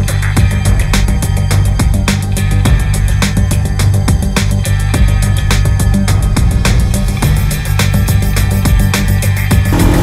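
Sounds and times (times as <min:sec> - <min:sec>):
sustained bass line: 0:09.5 - 0:10.0
drum hits: 0:09.7 - 0:10.0.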